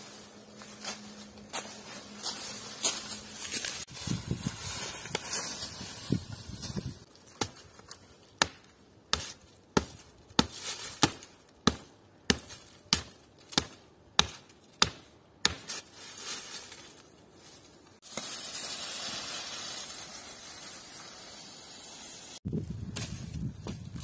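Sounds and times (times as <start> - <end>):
axe chopping wood: 8.4 - 15.8.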